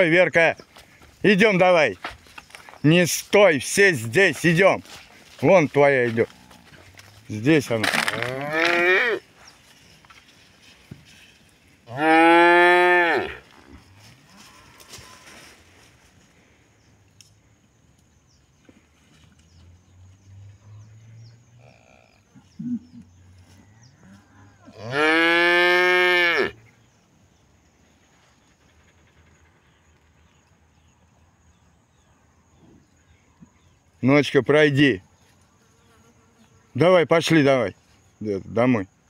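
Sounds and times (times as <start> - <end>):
cow mooing: 8.1 - 9.2, 11.9 - 13.4, 24.0 - 26.6.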